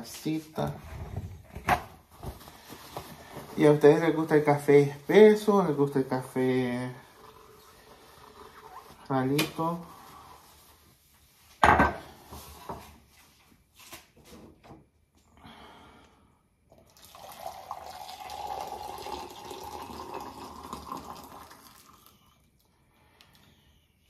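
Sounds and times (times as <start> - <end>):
hot water pouring into a cup: 6.7 - 9.0, 16.7 - 22.4.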